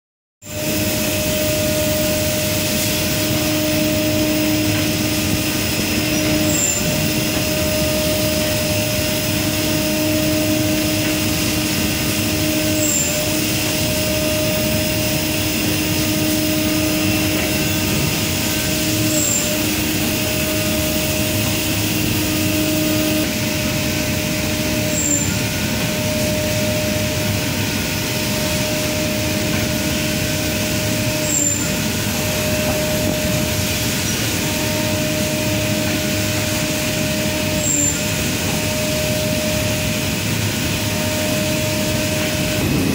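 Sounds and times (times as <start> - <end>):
machinery hum: 0.4 - 42.9.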